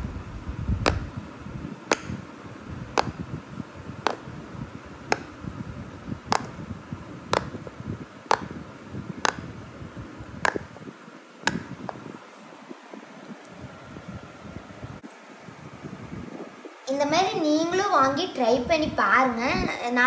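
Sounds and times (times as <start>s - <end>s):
fidget toy bubbles popping: 1.9s - 2.2s, 5.1s - 5.3s, 6.3s - 6.6s, 7.3s - 7.6s, 8.3s - 8.6s, 9.2s - 9.5s, 10.4s - 10.7s, 11.5s - 12.0s.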